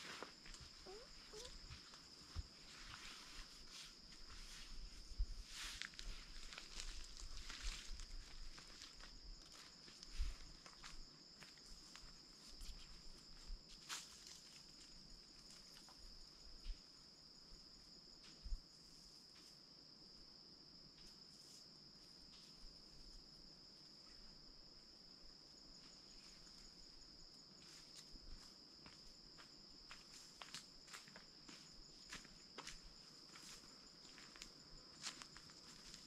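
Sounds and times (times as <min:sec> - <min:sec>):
pulsing insect trill: 0:00.0 - 0:19.5
crickets droning: 0:00.0 - 0:36.0.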